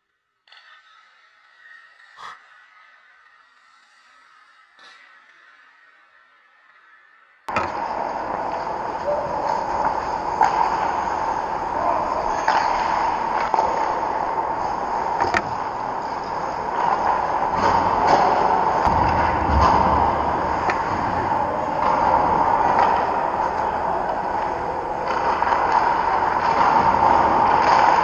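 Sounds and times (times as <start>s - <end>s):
skate blades scraping ice: 7.5s - 28.0s.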